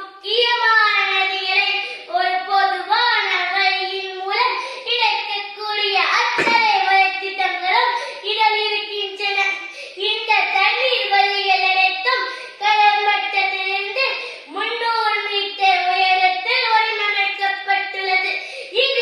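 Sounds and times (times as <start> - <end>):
boy reciting in sing-song voice: 0.0 - 19.0
thump: 6.4 - 6.9.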